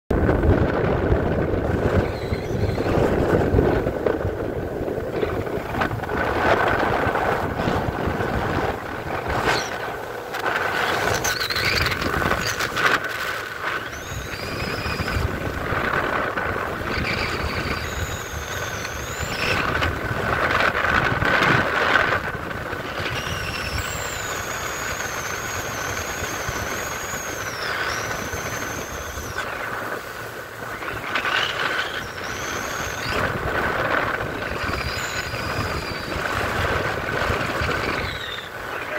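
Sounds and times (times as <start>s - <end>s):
boat engine: 0.1s - 38.9s
hull on water: 0.1s - 38.9s
wind gusts on microphone: 0.1s - 38.9s
wavering high whistles: 1.8s - 3.4s, 13.8s - 15.4s, 16.9s - 19.9s, 23.0s - 29.8s, 30.6s - 36.7s, 37.5s - 38.9s.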